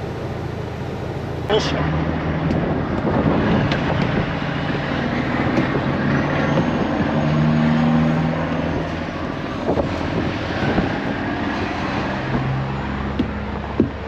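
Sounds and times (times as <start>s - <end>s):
diesel engine idling: 0.0s - 7.4s.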